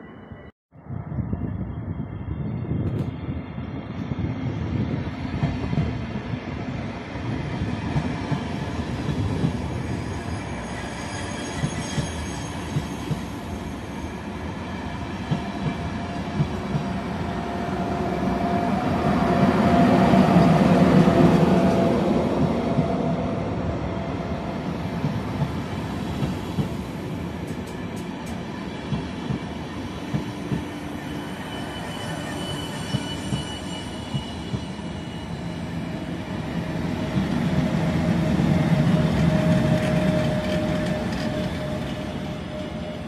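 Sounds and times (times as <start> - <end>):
train wheels rumbling on rail: 0.9 - 43.0
thin wheel squeal: 10.0 - 13.1, 31.0 - 35.6.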